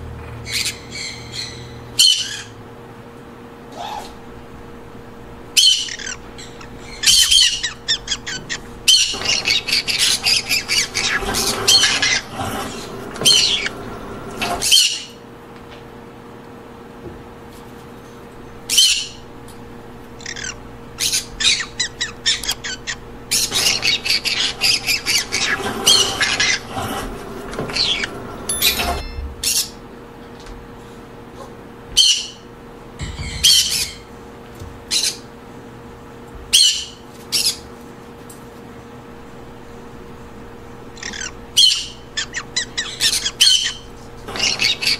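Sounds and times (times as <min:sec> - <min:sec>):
faint steady hum: 0:00.0 - 0:15.4, 0:16.1 - 0:31.8, 0:37.6 - 0:44.9
parrots squawking: 0:00.4 - 0:02.6, 0:03.8 - 0:15.2, 0:18.4 - 0:29.8, 0:39.2 - 0:44.9.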